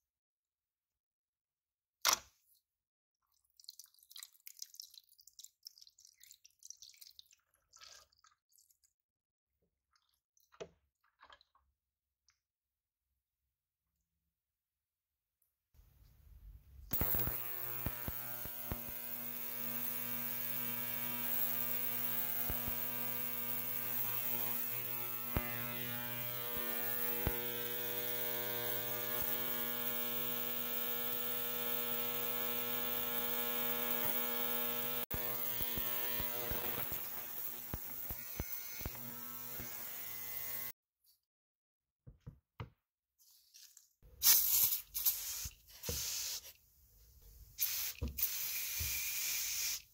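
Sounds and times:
ultrasonic cleaner buzzing hum: 0:16.9 - 0:40.7
spray hiss: 0:44.2 - 0:46.6, 0:47.6 - 0:49.9.

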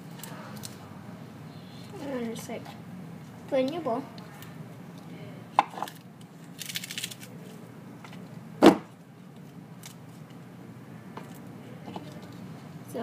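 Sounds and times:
lettuce leaves tearing: 0:05.9 - 0:07.3.

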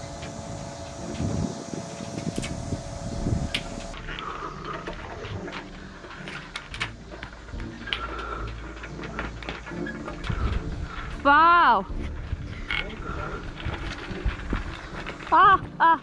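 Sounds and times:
wind rumble on microphone: 0:00.0 - 0:04.0, 0:10.2 - 0:15.3
steady hum: 0:00.0 - 0:15.3
webbing and rope rustling: 0:03.6 - 0:15.8.

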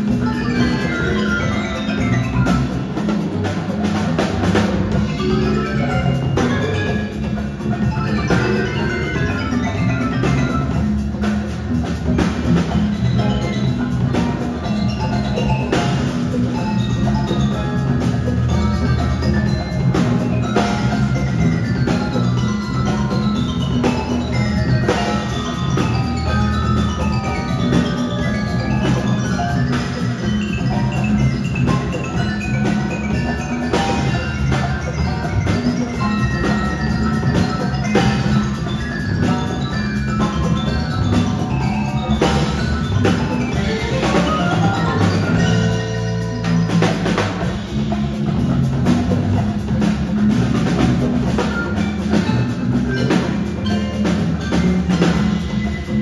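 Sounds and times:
congas: 0:00.0 - 0:56.0
drum kit: 0:00.0 - 0:56.0
marimbas playing melodic lines: 0:00.0 - 0:56.0.

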